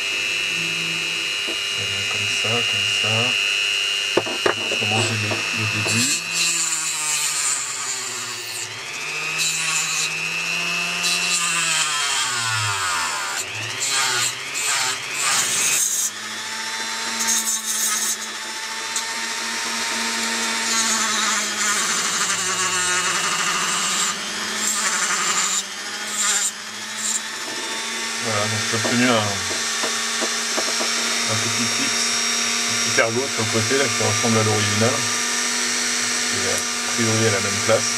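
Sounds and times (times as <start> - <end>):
rotary tool motor whine: 0.0 - 37.9
scratchy grinding on plastic: 4.1 - 8.0, 19.8 - 35.2.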